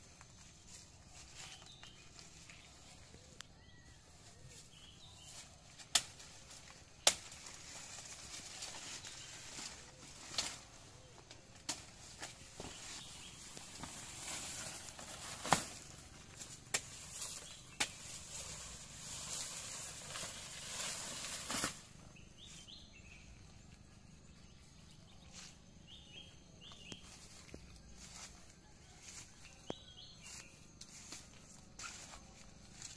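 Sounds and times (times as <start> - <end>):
banana leaves rustling: 0.0 - 23.6, 24.9 - 32.9
sharp snaps of leaves: 5.7 - 10.8, 11.5 - 21.9.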